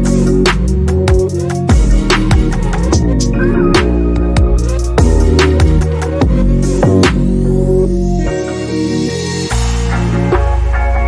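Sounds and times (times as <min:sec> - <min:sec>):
music with drum beat: 0:00.0 - 0:07.6
sliding deep bass notes: 0:00.0 - 0:09.2.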